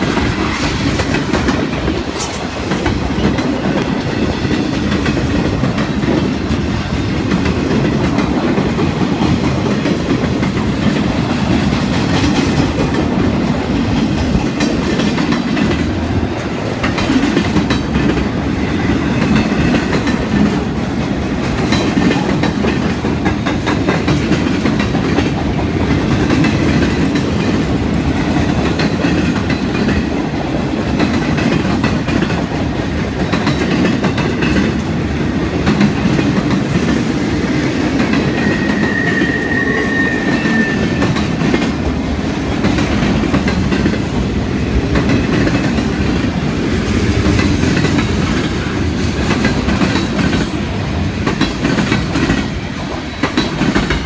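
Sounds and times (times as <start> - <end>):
wheels clicking over rail joints: 0.0 - 37.0
train wheels rumbling on rails: 0.0 - 54.0.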